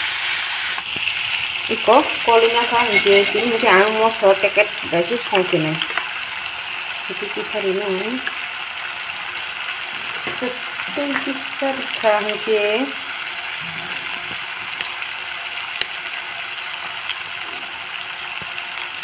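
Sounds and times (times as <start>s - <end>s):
onions sizzling in oil: 0.0s - 19.0s
person's voice: 1.7s - 5.8s.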